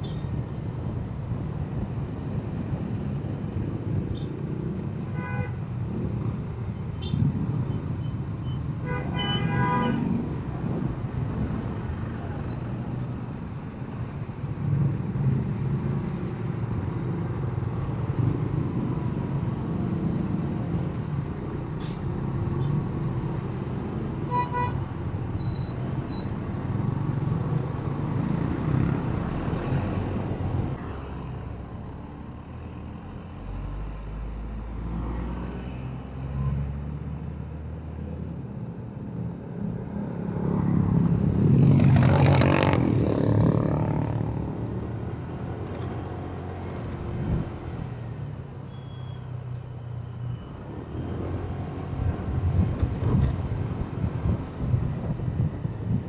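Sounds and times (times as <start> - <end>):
road noise: 0.0 - 56.0.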